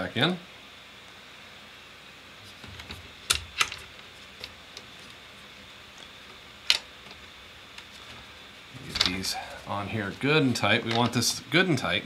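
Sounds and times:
metal parts clicking and tapping: 2.7 - 4.9, 8.9 - 9.4.

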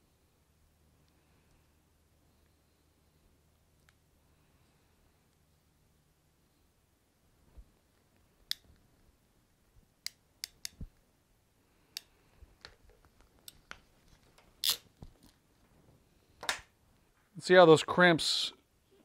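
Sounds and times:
crimp tool clicks and snaps: 10.0 - 10.8
wire handling noises: 11.8 - 17.3.

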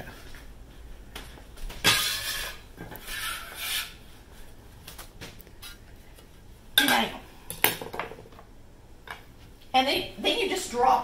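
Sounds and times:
utensil scraping batter in glass bowl: 1.9 - 4.0.

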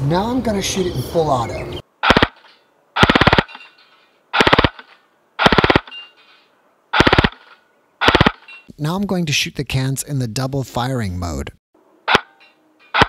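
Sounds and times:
airsoft gun firing bursts: 2.0 - 2.4, 3.0 - 3.6, 4.4 - 5.9, 7.0 - 8.4.

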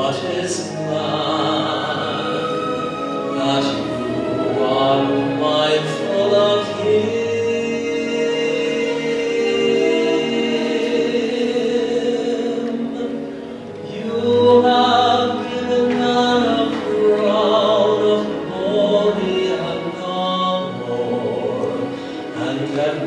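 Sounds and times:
choir singing sacred song: 0.0 - 13.2.

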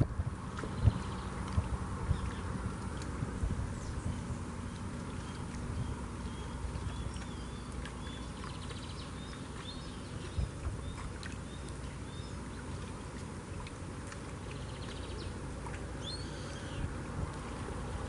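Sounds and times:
steady low rumble: 0.0 - 18.0
small birds chirping: 0.7 - 1.4, 2.1 - 2.6, 3.7 - 13.2, 14.5 - 16.9.

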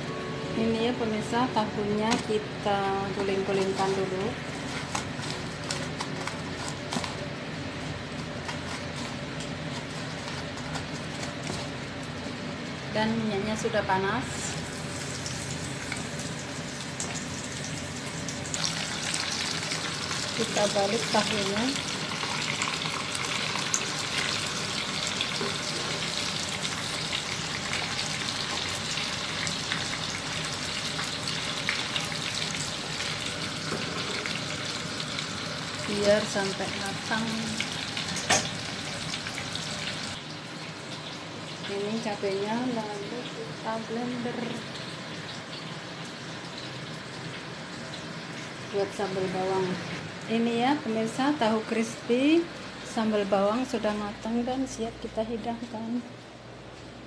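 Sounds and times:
low kitchen hum: 0.0 - 57.0
crumbly rustles of breadcrumbs: 3.4 - 12.3
tofu sizzling in hot oil: 14.3 - 41.7.

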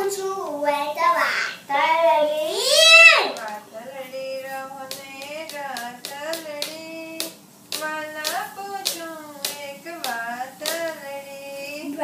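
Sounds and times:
boy singing devotional song: 0.0 - 12.0
hand beats: 4.8 - 11.2.

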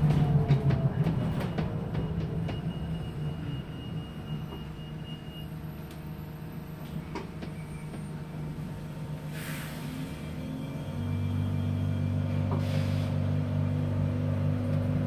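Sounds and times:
low bus hum: 0.0 - 15.0.

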